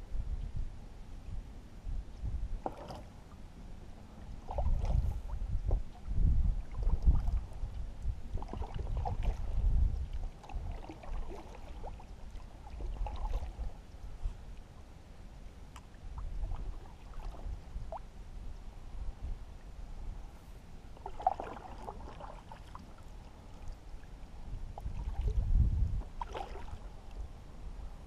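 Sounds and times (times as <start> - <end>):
uneven low rumble: 0.0 - 10.8
water moving against boat hull: 2.6 - 3.3, 4.2 - 14.4, 15.8 - 18.0, 20.4 - 27.3.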